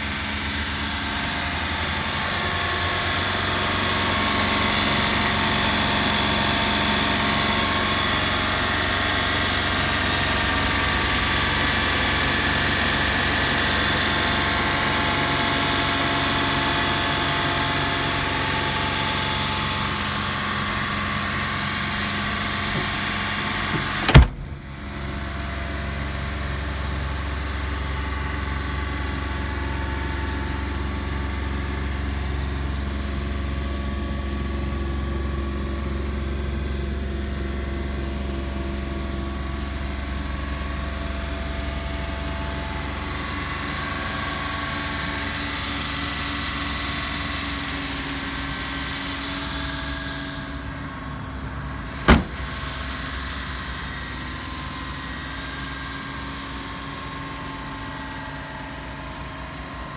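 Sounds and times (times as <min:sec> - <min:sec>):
truck engine idling: 0:00.0 - 0:59.9
loud thump: 0:23.7 - 0:24.8, 0:52.0 - 0:52.6.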